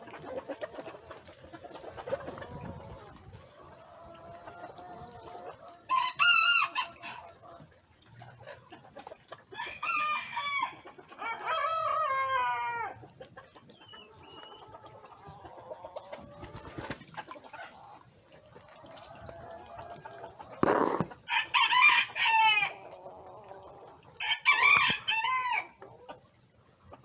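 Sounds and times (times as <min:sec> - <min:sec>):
hens clucking: 0:00.0 - 0:27.0
roosters crowing: 0:05.9 - 0:07.2, 0:09.6 - 0:13.0, 0:20.8 - 0:22.8, 0:24.2 - 0:25.8.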